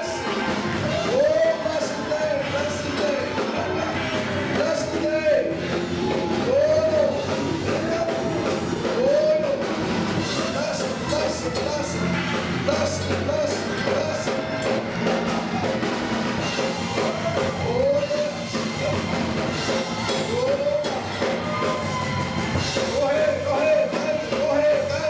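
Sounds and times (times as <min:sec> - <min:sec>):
drums and instruments: 0:00.0 - 0:25.0
person singing: 0:16.6 - 0:25.0.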